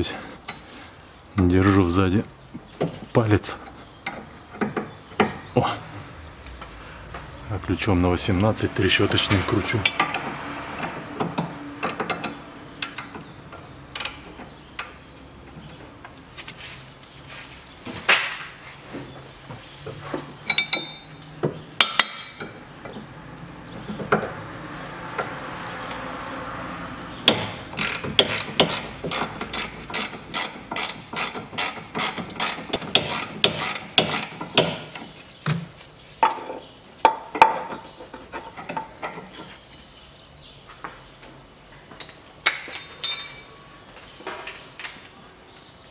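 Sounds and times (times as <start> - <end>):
metal tools clinking: 20.4 - 21.2, 42.0 - 43.6
ratcheting wrench clicking: 27.3 - 35.1.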